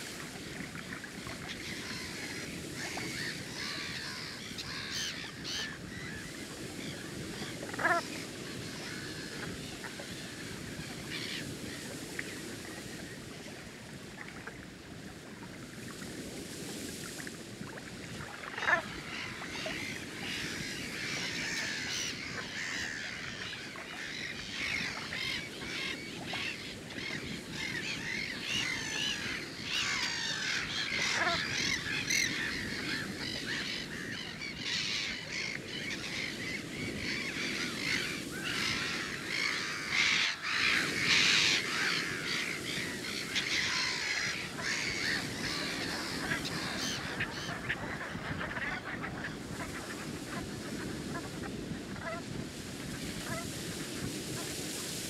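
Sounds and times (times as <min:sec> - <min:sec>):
geese calling: 0:27.0 - 0:34.0.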